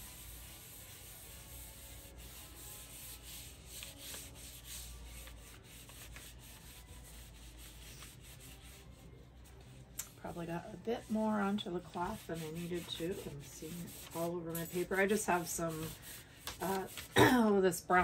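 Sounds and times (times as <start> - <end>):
cloth wiping wooden board: 0.0 - 8.9, 11.9 - 17.2.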